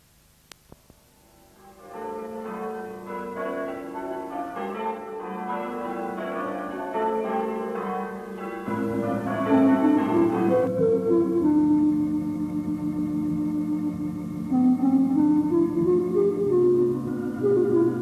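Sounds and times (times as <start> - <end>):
church bells ringing: 1.4 - 12.2.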